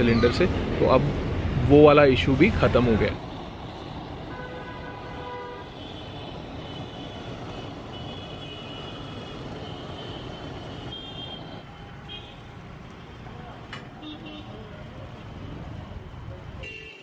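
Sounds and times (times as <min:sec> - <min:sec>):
blowtorch flame roaring: 0:00.4 - 0:11.8.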